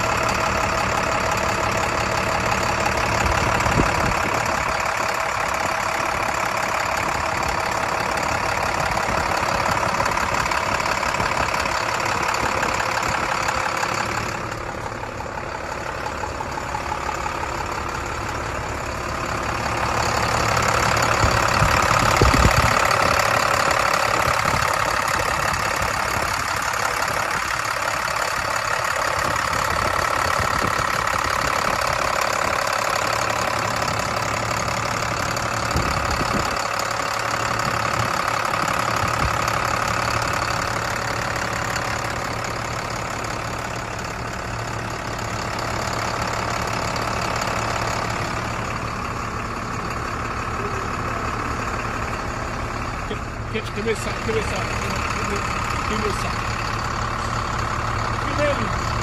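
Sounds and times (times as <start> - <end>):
diesel engine idling: 0.0 - 59.0.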